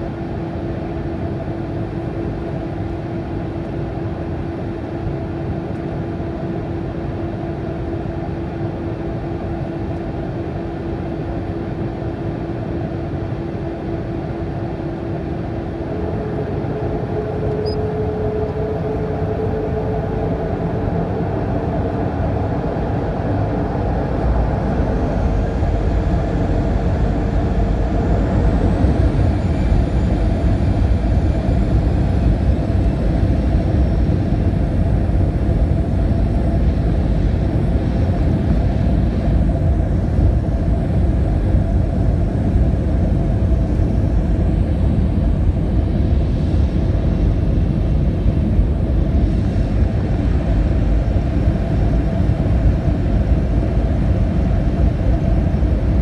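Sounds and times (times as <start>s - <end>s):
jet engines rumbling: 10.8s - 56.0s
high whine rising in pitch: 15.4s - 35.6s.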